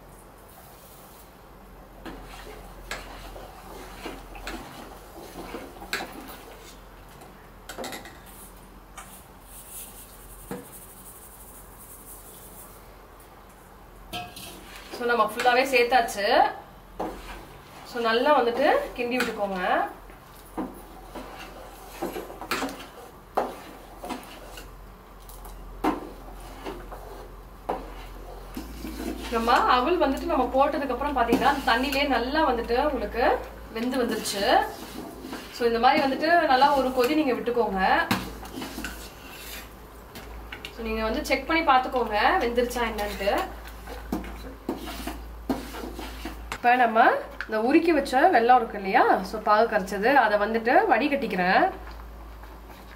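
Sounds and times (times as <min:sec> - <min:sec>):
ladle scraping steel pot: 0:38.4 - 0:39.8.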